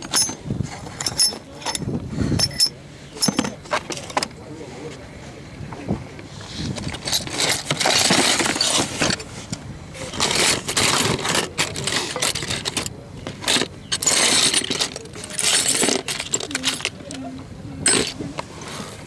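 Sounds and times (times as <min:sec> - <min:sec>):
steel tools clinking: 0:00.0 - 0:04.3, 0:06.8 - 0:09.3, 0:10.0 - 0:18.4.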